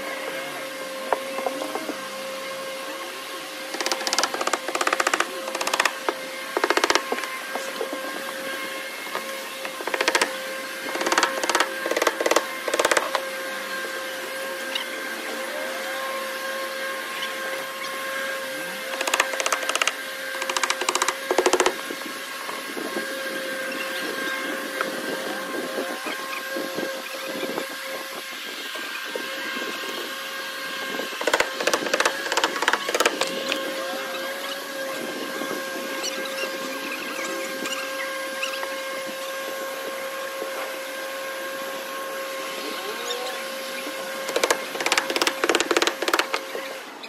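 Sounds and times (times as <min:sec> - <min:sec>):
steady mechanical hum: 0:00.0 - 0:47.0
bursts of rapid knocks: 0:09.8 - 0:10.3, 0:18.9 - 0:21.8, 0:31.2 - 0:33.3, 0:44.3 - 0:46.4.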